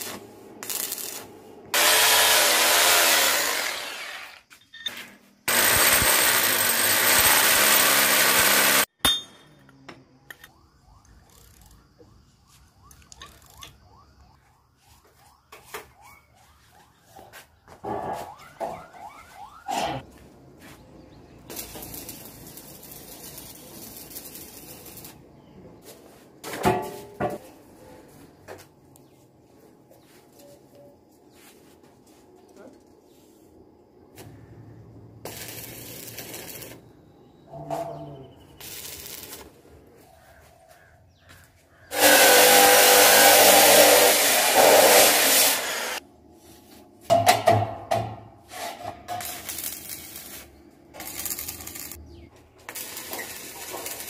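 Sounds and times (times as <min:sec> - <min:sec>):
welding arc crackling and hissing: 0:00.0 - 0:04.3, 0:05.5 - 0:08.9, 0:21.4 - 0:25.3, 0:35.2 - 0:36.8, 0:38.6 - 0:39.6, 0:41.9 - 0:46.0, 0:49.1 - 0:52.0, 0:52.6 - 0:54.0
electric drill drilling: 0:01.8 - 0:04.4, 0:05.5 - 0:08.9, 0:41.9 - 0:46.0.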